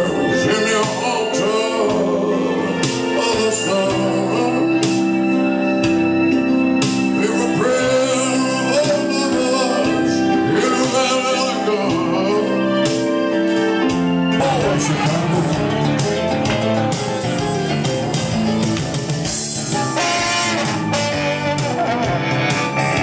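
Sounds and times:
man singing: 0.0s - 5.4s, 7.0s - 13.4s, 14.3s - 17.3s
electric guitar: 0.0s - 23.0s
electronic organ chords: 0.0s - 23.0s.

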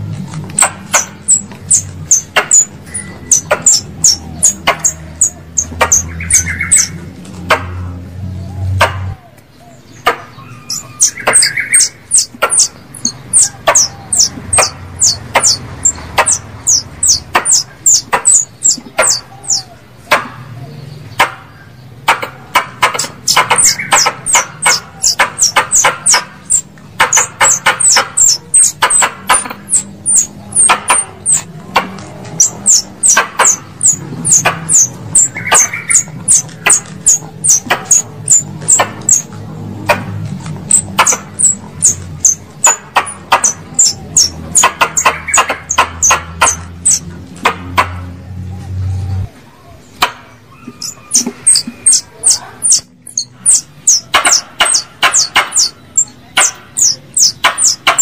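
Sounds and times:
squirrel high chirps: 0.6s - 7.0s, 10.3s - 19.8s, 22.8s - 31.5s, 32.3s - 39.3s, 40.7s - 47.1s, 50.5s - 58.0s.

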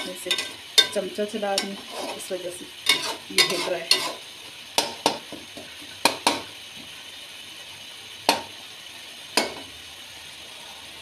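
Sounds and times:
spoon scraping a pot: 0.0s - 4.3s
meat sizzling in oil: 0.0s - 11.0s.

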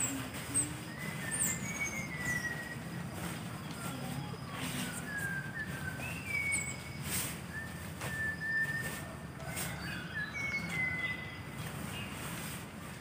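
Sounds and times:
otter whining squeaks: 0.0s - 11.5s
plastic raincoat rustling: 11.6s - 13.0s.

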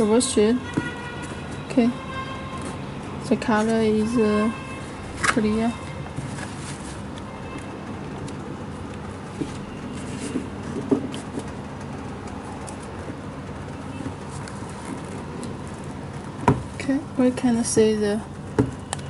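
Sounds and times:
faint clicks and rustles: 4.8s - 16.9s.

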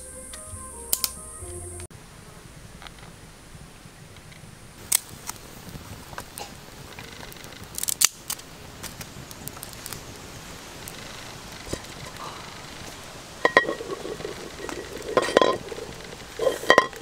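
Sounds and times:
twig fire crackling: 4.1s - 17.0s.

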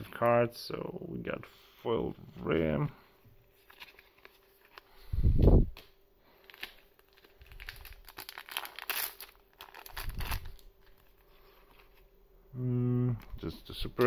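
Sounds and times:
foil pack crinkling and tearing: 6.2s - 12.0s.

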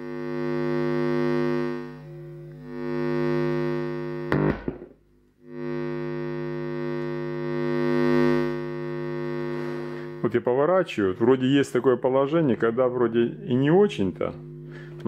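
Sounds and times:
crackle: 0.0s - 10.2s
mains hum buzz from speakers: 0.0s - 15.0s.

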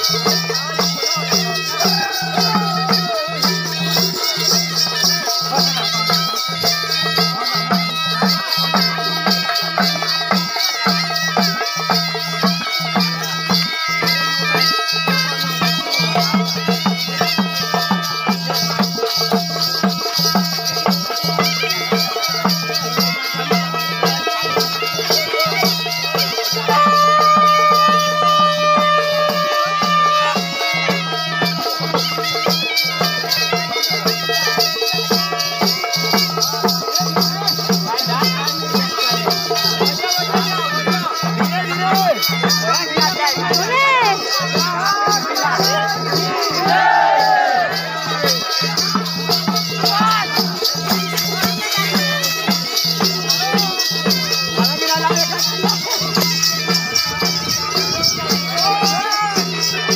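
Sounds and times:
regular drum beat: 0.0s - 59.9s.

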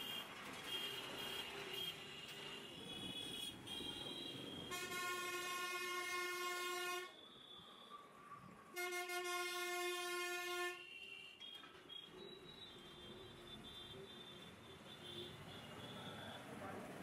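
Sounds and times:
air horn blasts: 4.7s - 7.2s, 8.8s - 11.0s.

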